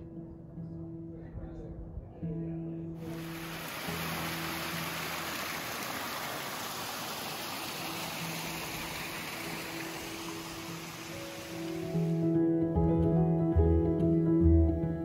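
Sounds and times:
faint background music: 0.0s - 5.6s
steady rushing noise: 3.1s - 12.2s.

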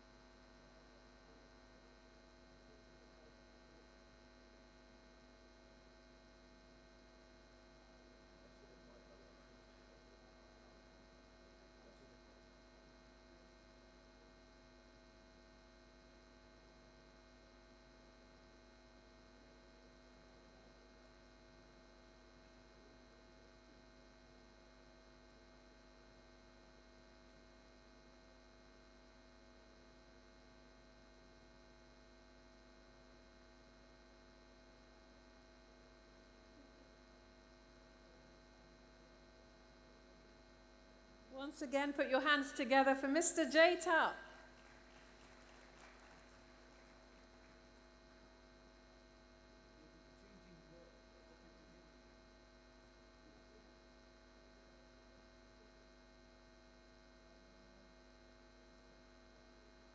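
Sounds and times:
faint electrical hum: 0.0s - 59.9s.

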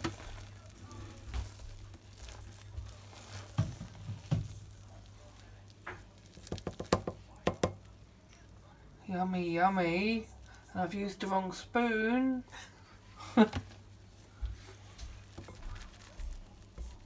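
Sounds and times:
wet squelching cake: 0.0s - 11.0s, 12.9s - 17.0s.

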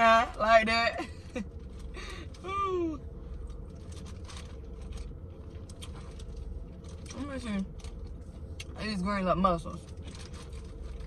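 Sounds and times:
low steady hum: 0.0s - 11.0s
plastic bag crinkling: 3.6s - 7.2s.

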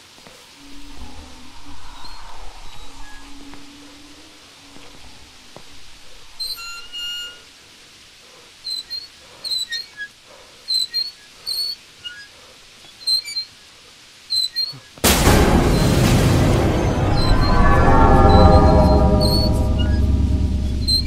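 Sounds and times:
faint hiss: 0.0s - 20.9s
high-pitched squeaks: 16.7s - 21.0s.

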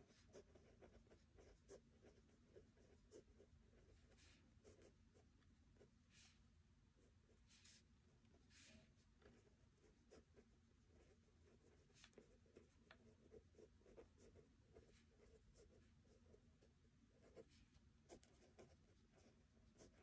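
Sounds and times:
pen scratching on paper: 0.0s - 5.2s, 7.0s - 20.0s.

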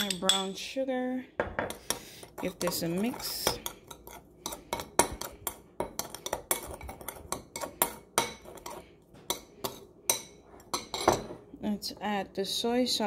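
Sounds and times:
spoon clinking against bowl: 0.0s - 0.6s.

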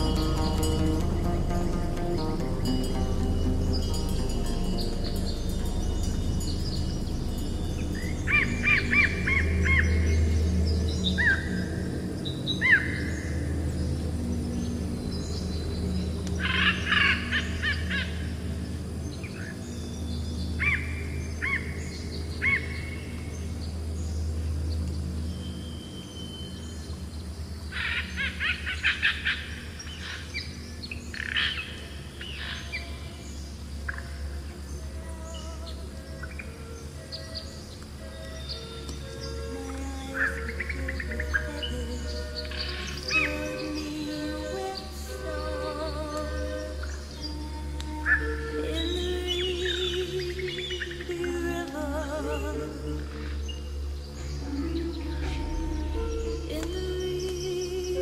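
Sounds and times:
ambient music drone: 0.0s - 58.0s
birdsong chirps and trills: 0.0s - 58.0s.

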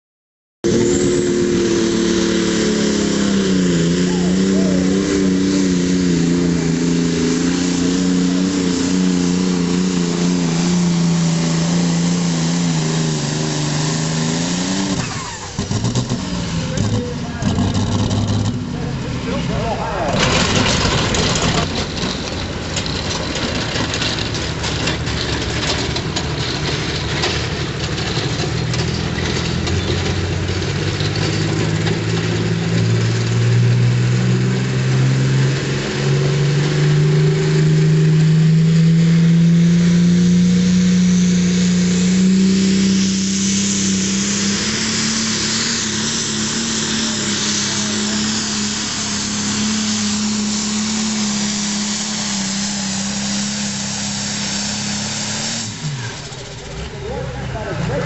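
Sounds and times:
tractor engine under full load: 0.6s - 58.0s
hiss: 41.9s - 56.6s.

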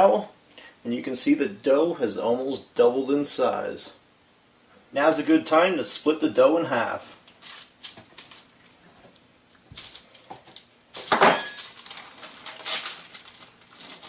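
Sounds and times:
dough handled by hand: 7.2s - 14.0s
parchment paper rustling: 7.2s - 14.0s.

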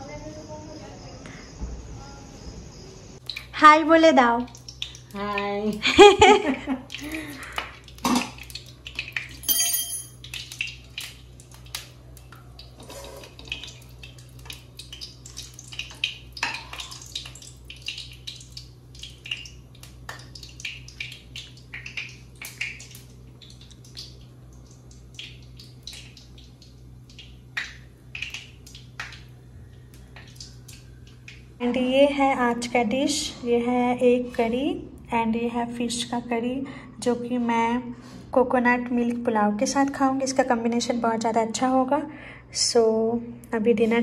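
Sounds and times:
dishes and cutlery clinking: 9.4s - 10.2s
ringing metallic clink: 9.4s - 10.2s.

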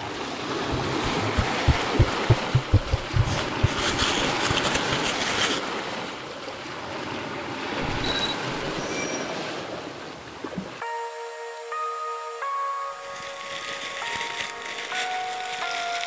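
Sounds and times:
water splashing and surf: 0.0s - 11.0s.

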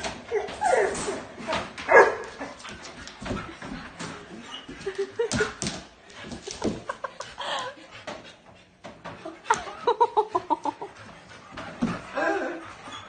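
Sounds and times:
dog whining and yipping: 0.3s - 1.2s.

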